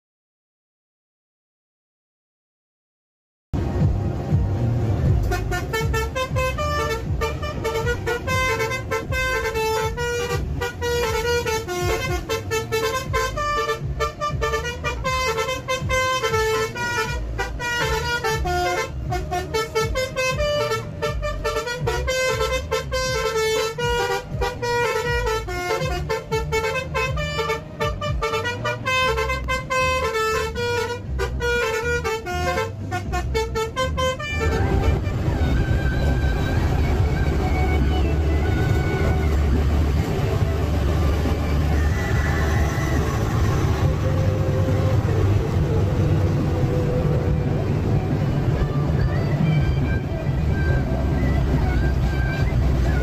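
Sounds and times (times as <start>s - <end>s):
bus engine and road rumble: 3.6s - 53.0s
multi-tone bus horn melody: 4.5s - 53.0s.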